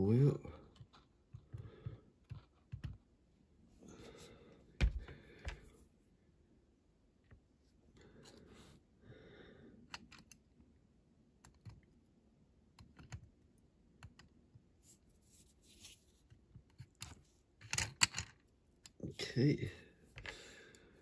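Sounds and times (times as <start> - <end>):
fingers clicking toy car parts: 9.9 - 10.4, 12.8 - 13.3.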